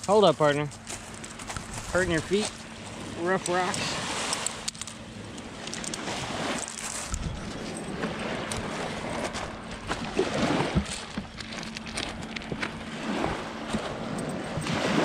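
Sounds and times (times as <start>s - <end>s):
small waves washing over pebbles: 1.8s - 11.9s, 12.5s - 15.0s
pebbles clicking and crunching: 5.6s - 7.3s.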